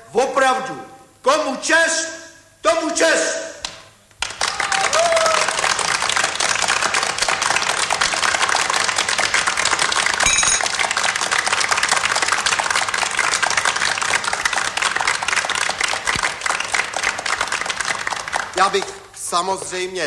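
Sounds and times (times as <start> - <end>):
many hands clapping: 3.6 - 19.2
short high ringing tone: 10.2 - 10.8.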